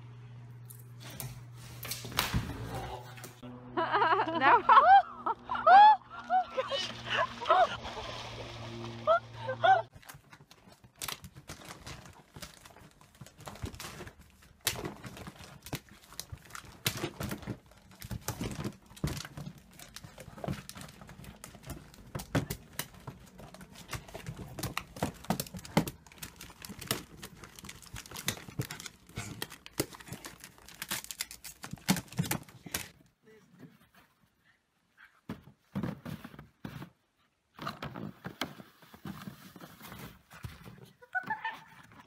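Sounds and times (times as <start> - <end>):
paper crinkling and rustling: 9.9 - 33.0, 37.6 - 42.0.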